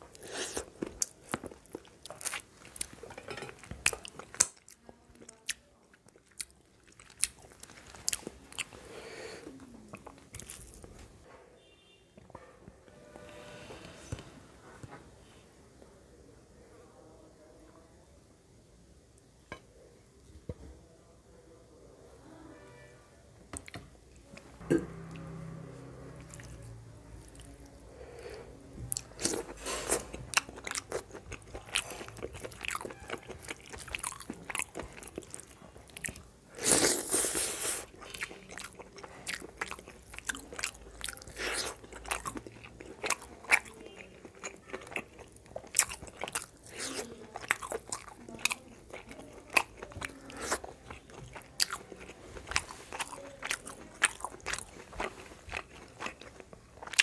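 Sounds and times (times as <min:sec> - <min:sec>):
person chewing food: 0:00.0 - 0:11.1, 0:26.2 - 0:57.0.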